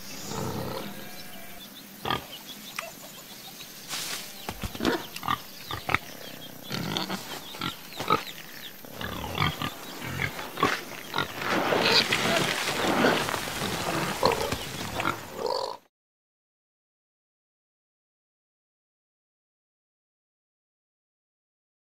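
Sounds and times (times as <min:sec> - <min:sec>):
pigs grunting: 0:00.1 - 0:02.4, 0:04.3 - 0:15.8.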